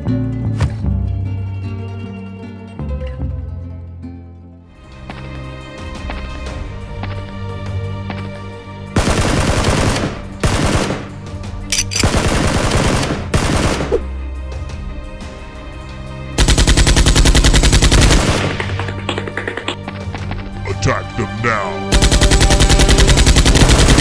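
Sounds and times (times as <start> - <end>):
background music: 0.0 - 24.0
automatic gunfire sound effects: 9.0 - 11.1, 11.8 - 14.0, 16.4 - 19.7, 21.9 - 24.0.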